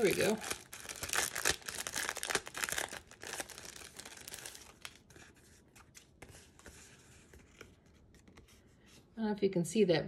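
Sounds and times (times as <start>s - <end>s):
cellophane sleeve crinkling: 0.0s - 6.2s.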